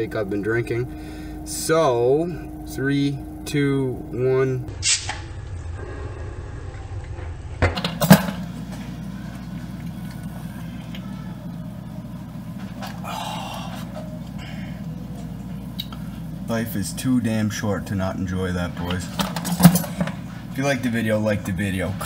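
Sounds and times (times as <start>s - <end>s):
steady low hum: 0.0s - 22.0s
drinking from a bottle: 12.8s - 16.3s.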